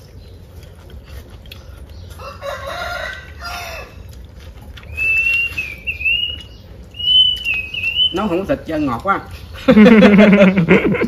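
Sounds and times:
chickens calling: 0.0 - 11.0
rooster crowing: 2.1 - 4.1.

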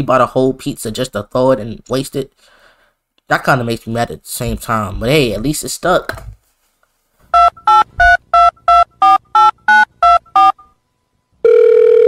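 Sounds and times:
phone keypad beeps: 7.3 - 10.7
steady telephone tone: 11.4 - 12.0.

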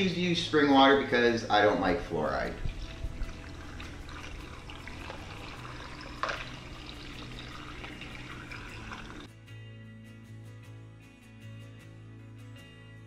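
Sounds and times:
music: 0.0 - 13.0
water pouring into blender jar: 2.8 - 9.3.

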